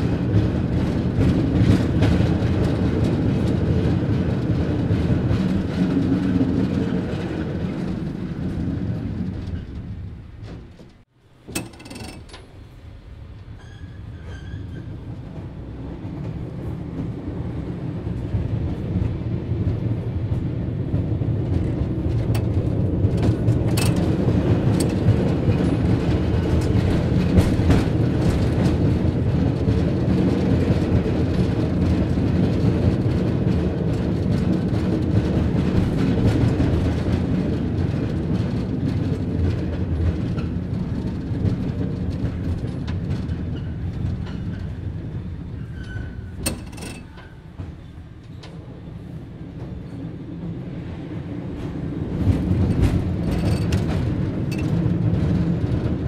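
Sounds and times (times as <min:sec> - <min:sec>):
cable car rumbling: 0:00.0 - 0:56.0
sharp clicks and clanks: 0:10.4 - 0:12.6, 0:22.1 - 0:25.3, 0:46.4 - 0:47.3.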